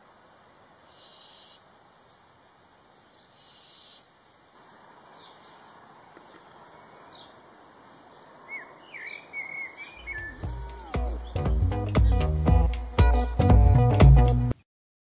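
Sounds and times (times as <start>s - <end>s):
owl chick hissing: 0.8s - 1.7s, 3.3s - 6.0s, 6.9s - 8.2s
high chirping: 6.2s - 13.3s.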